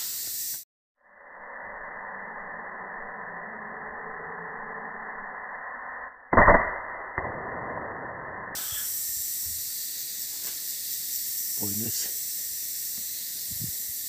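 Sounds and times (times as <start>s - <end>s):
steady hiss: 0.0s - 0.6s, 8.6s - 14.0s
air rifle shot: 6.3s - 8.9s.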